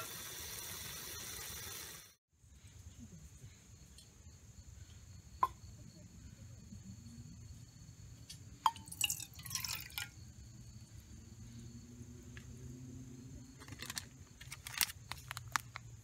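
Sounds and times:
water drips: 8.3s - 10.2s
water splashing into metal pot: 8.6s - 10.2s.

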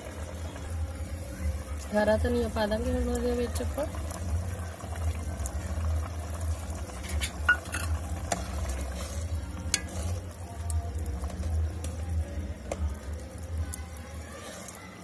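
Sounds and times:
ladle stirring curry: 3.9s - 15.0s
ladle clinking against pan: 7.1s - 8.0s.

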